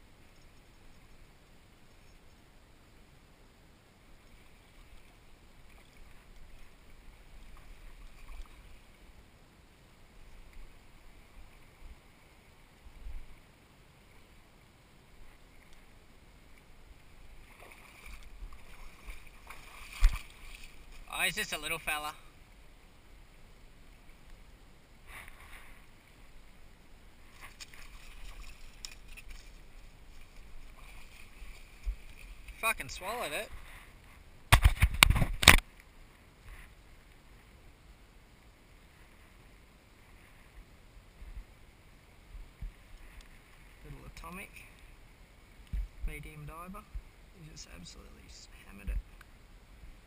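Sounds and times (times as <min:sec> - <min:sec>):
stream water splashing: 0:01.8 - 0:37.7
grass rustling: 0:04.1 - 0:37.6.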